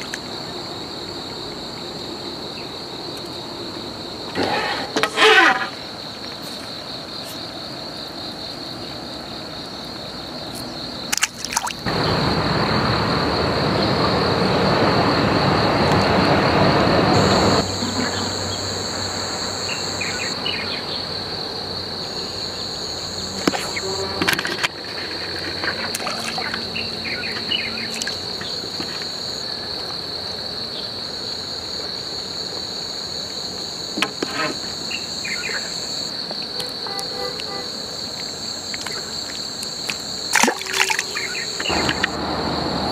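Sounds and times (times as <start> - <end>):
insects trilling: 0.0 - 42.9
rushing noise: 11.9 - 19.4, 41.0 - 42.9.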